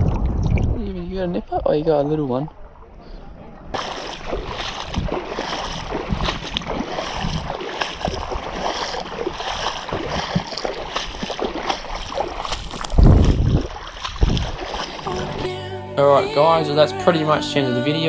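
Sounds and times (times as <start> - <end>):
wind buffet on microphone: 0.0 - 1.7, 4.2 - 8.7, 12.5 - 14.8
water sloshing around legs: 3.6 - 15.4.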